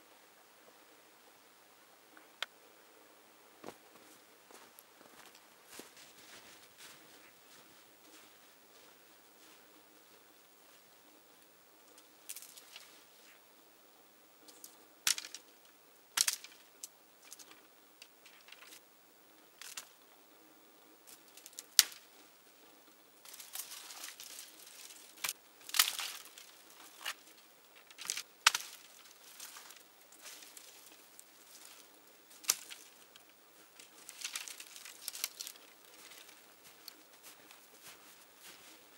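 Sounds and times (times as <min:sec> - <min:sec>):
twigs crackling and rustling: 0:03.6 - 0:13.4, 0:14.4 - 0:20.3, 0:21.0 - 0:38.9
branches cracking and snapping: 0:12.3 - 0:12.9, 0:14.5 - 0:15.5, 0:16.1 - 0:18.8, 0:19.6 - 0:20.0, 0:21.1 - 0:22.2, 0:23.2 - 0:37.0.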